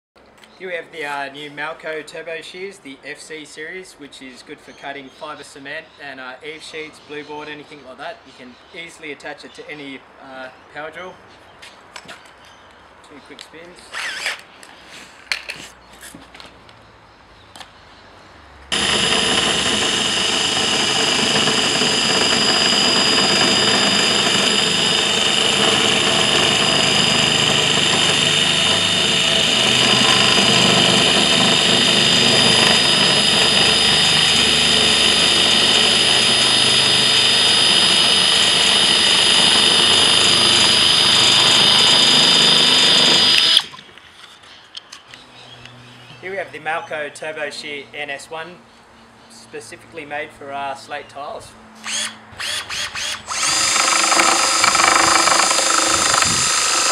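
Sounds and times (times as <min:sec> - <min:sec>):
drill shear cutting whine: 0:13.9 - 0:14.4, 0:18.7 - 0:43.8, 0:51.8 - 0:56.9.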